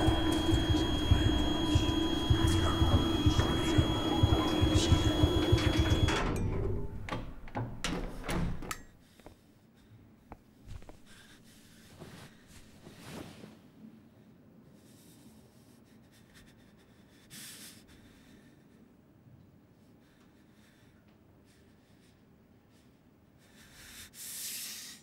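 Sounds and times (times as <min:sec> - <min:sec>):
metal elevator doors clattering: 0:00.0 - 0:08.9
breath hiss: 0:23.5 - 0:25.0.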